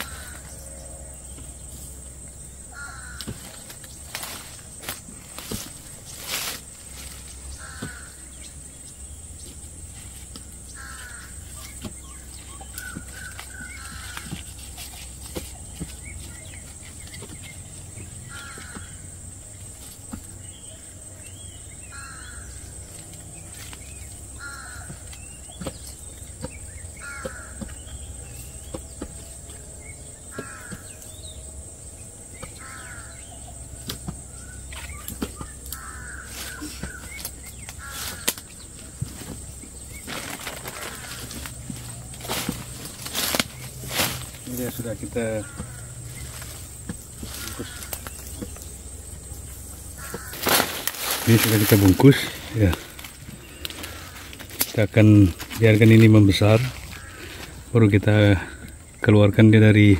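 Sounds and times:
bird harsh calls: 0.0 - 59.9
plastic bags rustling: 37.8 - 45.6, 50.0 - 57.8.

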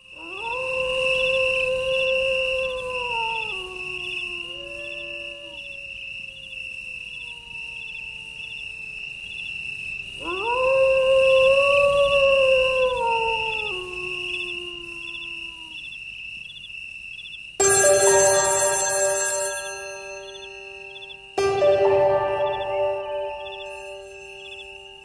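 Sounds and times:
dog howling: 0.2 - 5.8, 10.2 - 15.8
crickets chirring: 4.9 - 10.2.

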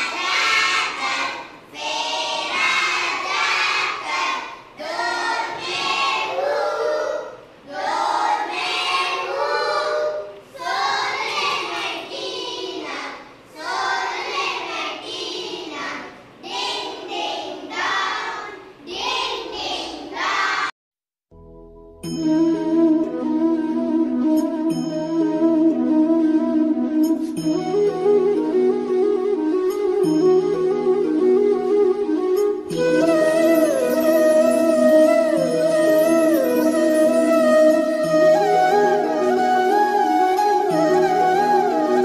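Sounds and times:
children singing in unison: 0.0 - 15.9, 16.5 - 20.7.

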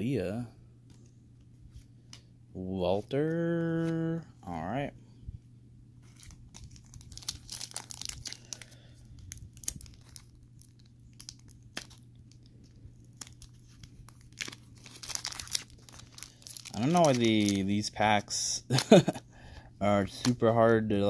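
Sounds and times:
foil wrapper crinkling: 6.0 - 18.1, 18.7 - 19.2.

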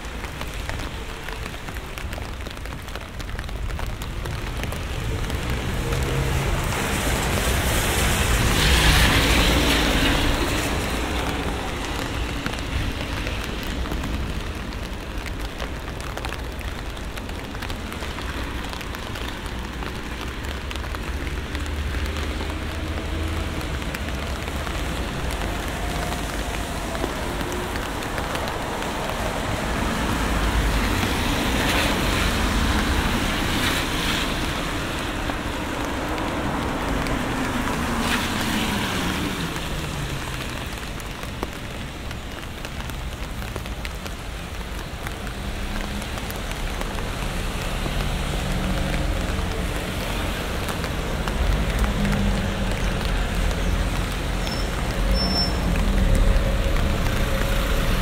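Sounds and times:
steady rain falling: 0.0 - 58.0
car passing: 4.6 - 14.7.

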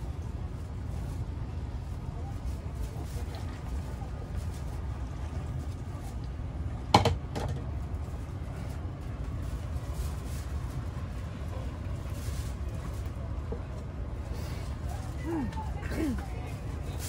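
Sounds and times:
bottle knocking on table: 7.0 - 7.6.

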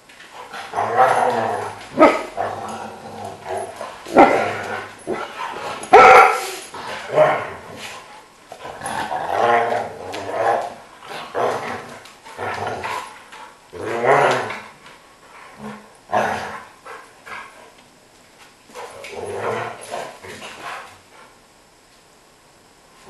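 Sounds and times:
dogs growling: 0.4 - 5.9, 6.5 - 14.8, 15.4 - 17.6, 18.8 - 20.9
dogs barking: 5.9 - 6.5.

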